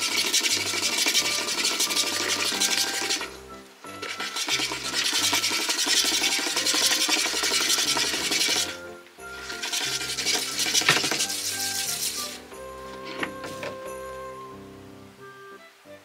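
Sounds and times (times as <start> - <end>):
motorised cat toy running: 0.0 - 3.3, 4.0 - 8.8
background music with steady beat: 0.0 - 16.0.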